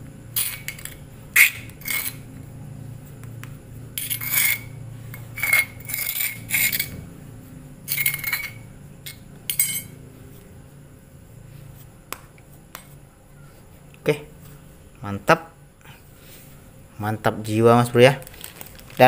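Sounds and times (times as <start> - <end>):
metal spoon scraping stone mortar: 0.4 - 2.3, 4.0 - 7.0, 7.9 - 9.9.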